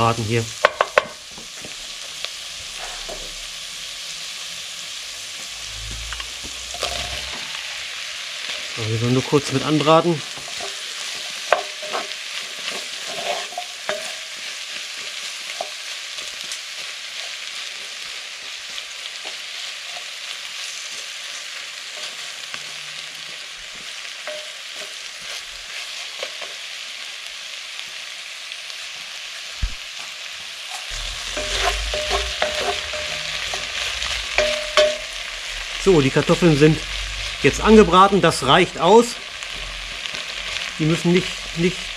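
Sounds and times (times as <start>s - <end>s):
vegetables sizzling in a pot: 0.0s - 41.9s
low rumble: 1.8s - 8.8s, 30.9s - 38.3s
wooden spoon scraping a pot: 10.2s - 14.4s, 30.9s - 35.3s.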